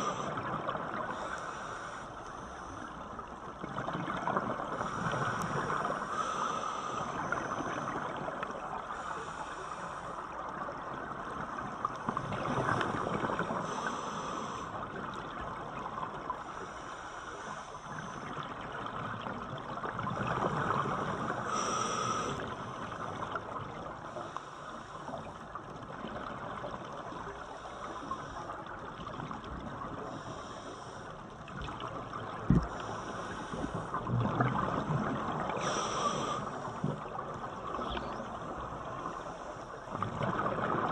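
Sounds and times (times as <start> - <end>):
diver breathing through regulator: 0.0 - 0.4, 1.1 - 3.0, 4.7 - 8.1, 8.9 - 10.3, 12.6 - 14.8, 16.5 - 18.3, 20.6 - 23.0, 30.0 - 31.2, 32.5 - 34.1, 35.4 - 37.1.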